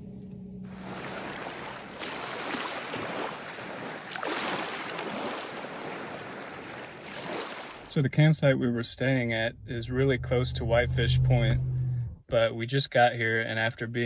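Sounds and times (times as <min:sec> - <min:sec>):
waves washing onto shore: 0:00.8 - 0:07.9.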